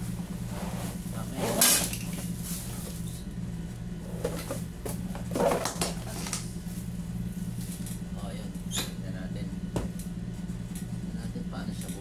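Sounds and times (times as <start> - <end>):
steady low hum: 0.0 - 12.0
rustling scraping handling noises: 0.4 - 3.2.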